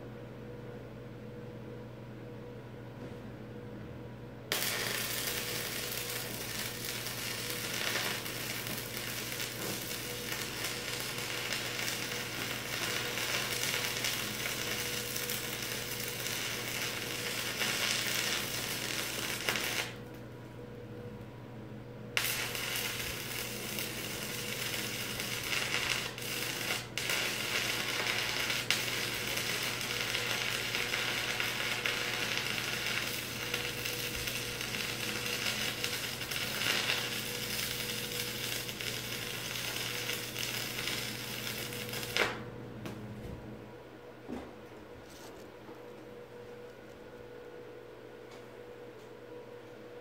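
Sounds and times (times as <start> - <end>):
welding arc crackling: 4.5 - 20.2, 22.2 - 42.5.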